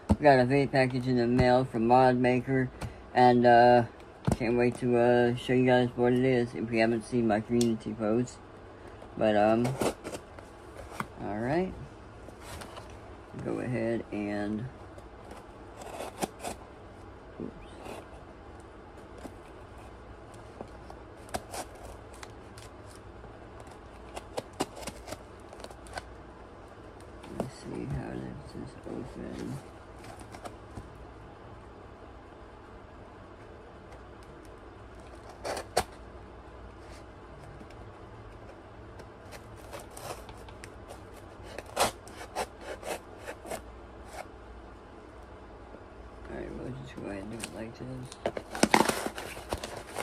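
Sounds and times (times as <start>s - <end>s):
knife cutting cardboard: 41.4s - 43.6s
knife cutting cardboard box: 48.4s - 50.0s.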